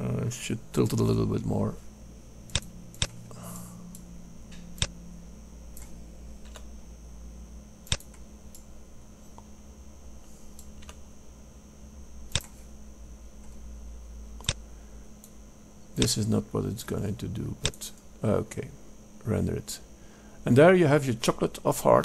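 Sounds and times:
faint high whine: 0.0 - 22.0
low electrical hum: 0.0 - 22.0
mouse and keyboard clicks: 12.3 - 12.6.

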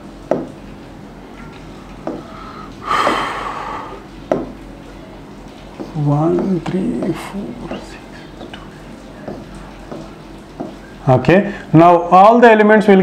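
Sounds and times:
low steady hum: 0.0 - 13.0
breathy rush of noise: 2.2 - 4.1.

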